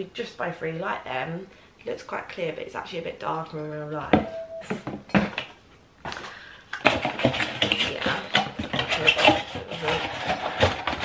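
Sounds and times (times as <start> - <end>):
items rubbing and crackling: 4.7 - 11.0.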